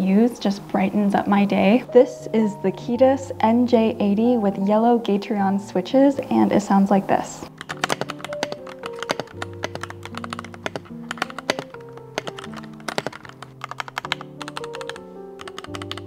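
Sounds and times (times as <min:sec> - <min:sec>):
soft background music: 0:00.0 - 0:16.0
mechanical keyboard typing: 0:07.5 - 0:16.0.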